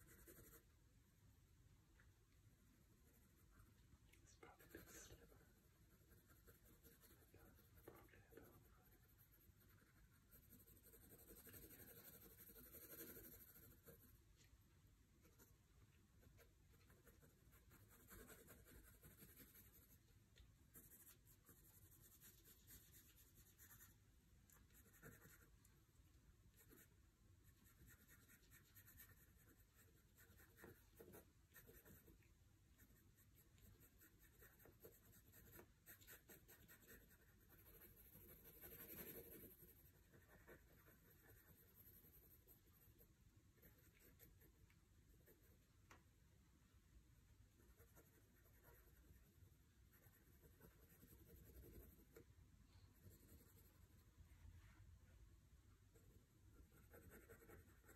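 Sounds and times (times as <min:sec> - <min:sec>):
pencil scratching on paper: 0:00.0 - 0:00.7, 0:04.4 - 0:14.2, 0:16.2 - 0:20.0, 0:20.7 - 0:25.5, 0:26.6 - 0:32.2, 0:32.8 - 0:45.6, 0:47.6 - 0:52.3, 0:52.9 - 0:54.0, 0:55.9 - 0:57.9.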